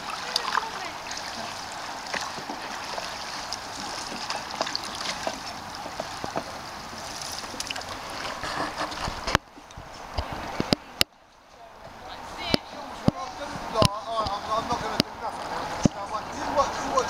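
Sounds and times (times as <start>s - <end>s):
paddle splashes and drips: 0.0s - 11.1s
water lapping and trickling: 0.0s - 17.0s.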